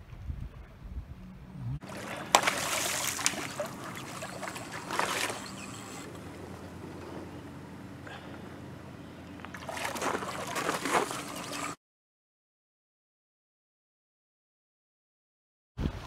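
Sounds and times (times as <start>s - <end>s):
wind buffeting microphone: 0.0s - 2.4s
water splashing from thrashing fish: 1.8s - 6.0s, 9.5s - 11.8s.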